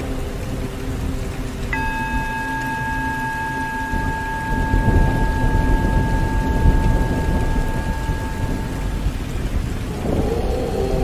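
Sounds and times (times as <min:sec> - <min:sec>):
rumbling rain-like noise: 0:00.0 - 0:11.0
steady ringing tone: 0:01.7 - 0:09.4.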